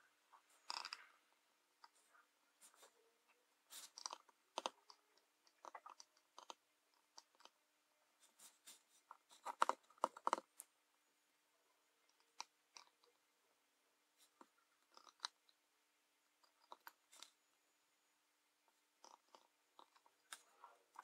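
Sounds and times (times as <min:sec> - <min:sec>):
tweezers clicking and scraping: 0:00.6 - 0:01.1.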